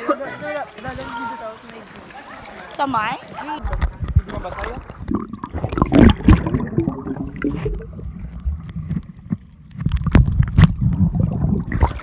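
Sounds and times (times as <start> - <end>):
muffled underwater sloshing: 1.2 - 12.0
knocks and splashes: 3.6 - 12.0.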